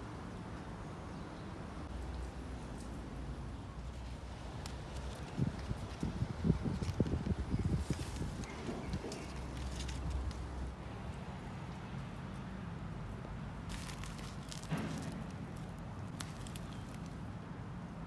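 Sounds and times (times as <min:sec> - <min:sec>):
soil and sack rustling: 0:04.0 - 0:10.6, 0:13.6 - 0:17.3.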